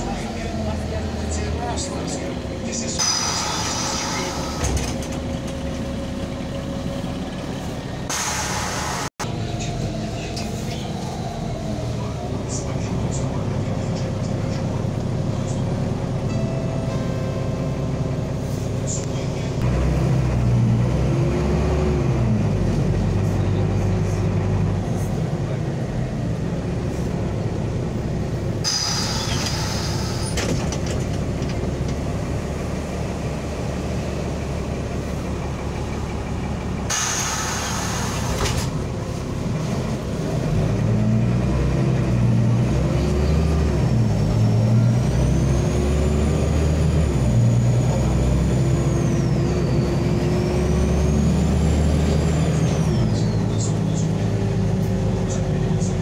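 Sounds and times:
bus diesel engine: 0.0s - 56.0s
road noise: 0.0s - 56.0s
air brake hisses: 3.0s - 4.6s, 8.1s - 9.1s, 28.6s - 30.4s, 36.9s - 38.6s.

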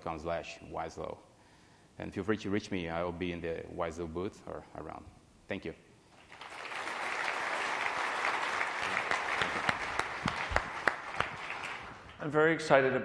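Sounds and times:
audience applauding: 6.2s - 12.2s
single sharp claps: 8.8s - 12.2s.

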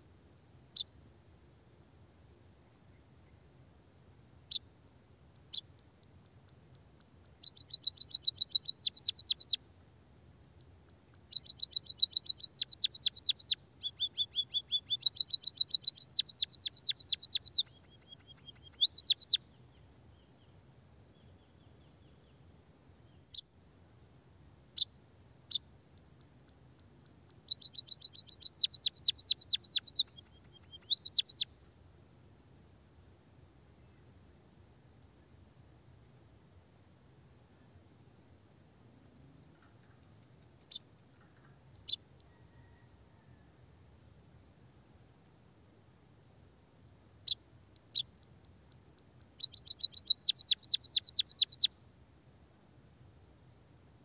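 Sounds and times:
bird chirps: 5.4s - 5.8s, 7.3s - 9.6s, 10.9s - 23.5s, 24.8s - 31.6s, 37.7s - 38.4s, 39.4s - 42.8s, 47.2s - 48.3s, 49.2s - 51.8s
rapid bird trills: 7.4s - 9.6s, 11.3s - 19.4s, 26.8s - 31.5s, 49.3s - 51.7s.

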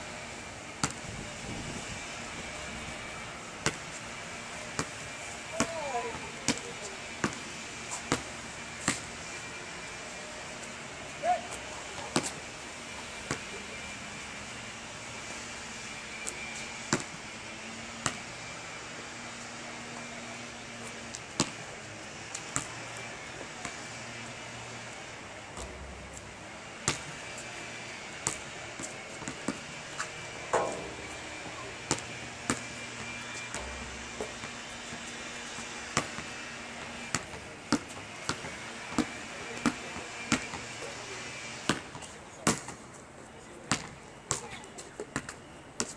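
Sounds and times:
basketball bouncing on asphalt: 0.8s - 1.7s, 3.6s - 4.0s, 4.6s - 9.1s, 11.5s - 12.4s, 16.2s - 17.2s, 18.0s - 18.4s, 21.1s - 21.7s, 22.3s - 22.8s, 24.9s - 40.7s, 41.6s - 42.8s, 43.7s - 44.5s, 45.1s - 45.9s.

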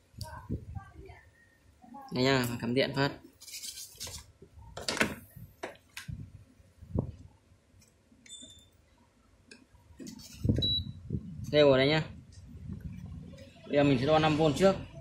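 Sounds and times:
short electronic beep: 10.6s - 11.0s.

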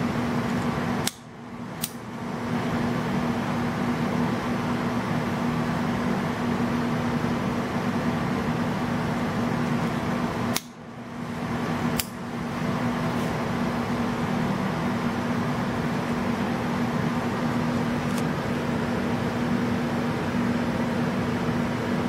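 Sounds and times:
fan-like room hum: 0.0s - 22.0s
lighter clicks: 1.0s - 2.0s, 10.5s - 10.8s, 12.0s - 12.2s.

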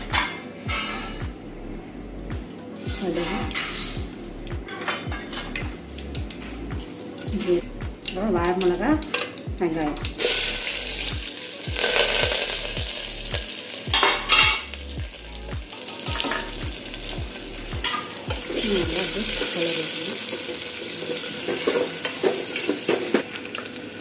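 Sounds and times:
onions sizzling in hot oil: 5.3s - 24.0s.

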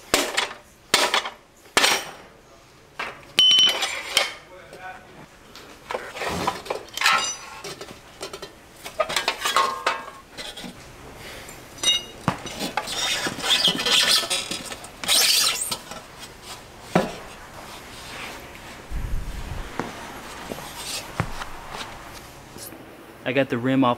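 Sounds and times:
scraping and rustling: 5.7s - 10.8s, 12.3s - 22.4s
metal parts clinking and knocking: 6.6s - 10.7s, 11.8s - 16.0s.

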